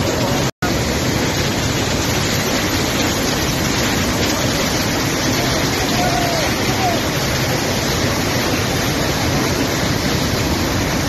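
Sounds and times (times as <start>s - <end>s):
flood water rushing: 0.0s - 11.0s.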